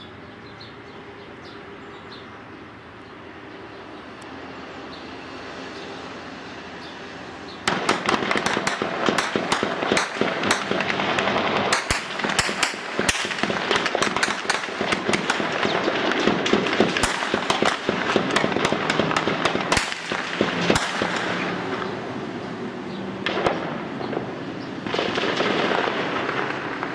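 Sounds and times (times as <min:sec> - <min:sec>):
automatic gunfire: 0:07.7 - 0:21.8, 0:23.3 - 0:26.9.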